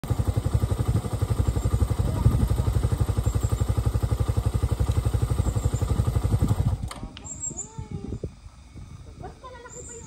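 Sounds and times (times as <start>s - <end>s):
motorcycle engine idling: 0.0s - 7.8s.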